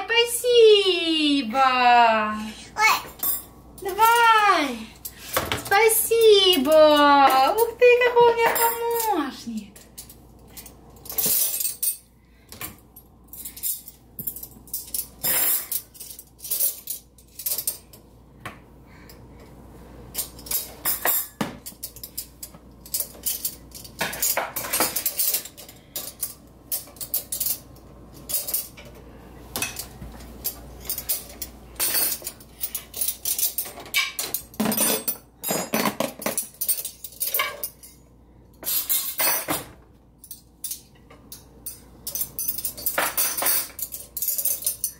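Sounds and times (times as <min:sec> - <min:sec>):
metal cutlery clinking: 0:08.4 - 0:12.1, 0:13.4 - 0:18.0, 0:20.1 - 0:38.0, 0:38.6 - 0:44.9.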